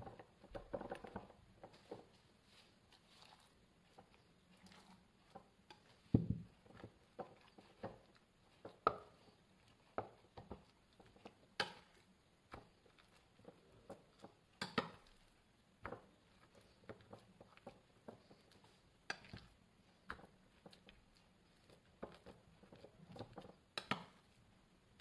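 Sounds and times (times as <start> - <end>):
soft knocks into mould: 6.1 - 6.5.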